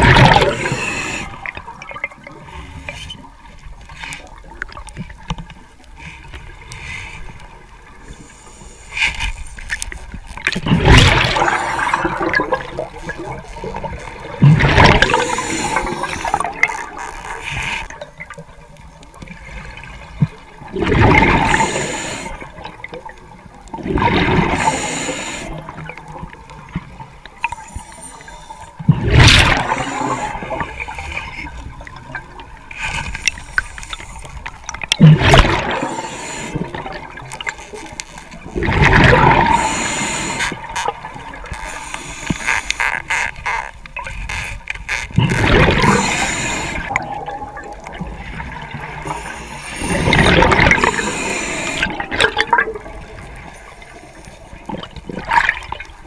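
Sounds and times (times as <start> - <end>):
bubbly gurgling exhalations: 0.0 - 2.4, 10.5 - 17.0, 20.6 - 22.8, 23.7 - 25.8, 28.8 - 32.2, 34.9 - 37.4, 38.5 - 41.4, 45.2 - 53.9
diver breathing through regulator: 0.2 - 1.5, 15.0 - 16.6, 21.3 - 22.6, 24.4 - 25.7, 29.4 - 31.5, 35.5 - 36.9, 39.2 - 40.8, 41.6 - 42.9, 45.5 - 47.0, 49.0 - 52.1
water wash: 44.2 - 56.0.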